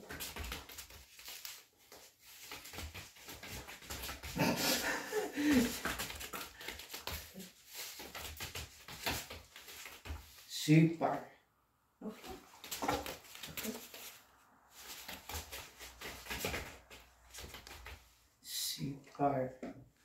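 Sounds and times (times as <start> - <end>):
paws and footsteps on rubber mats: 12.1 - 18.3.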